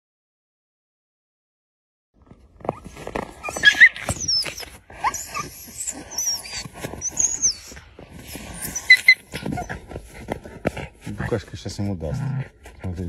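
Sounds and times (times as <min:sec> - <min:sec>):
wolves whining in high squeals: 0:02.6 - 0:09.8.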